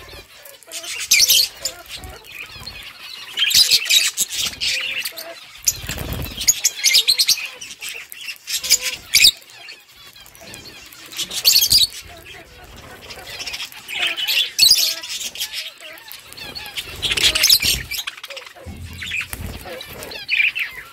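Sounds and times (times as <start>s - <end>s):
budgerigars chattering and chirping: 0.0s - 20.9s
low rumble: 18.6s - 20.3s.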